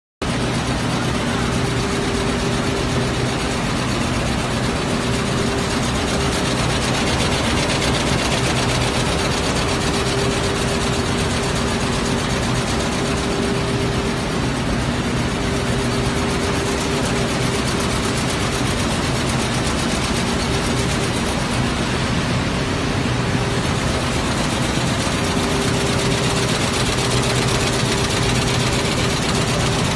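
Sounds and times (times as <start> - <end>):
factory machinery running: 0.2 - 29.9
quilting machine stitching: 0.3 - 22.2, 23.6 - 29.9.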